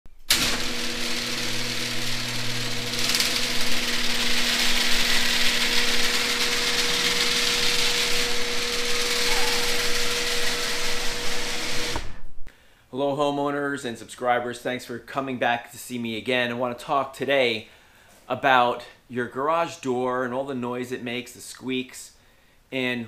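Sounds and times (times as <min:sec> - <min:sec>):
garage door opener motor hum: 0:00.2 - 0:12.2.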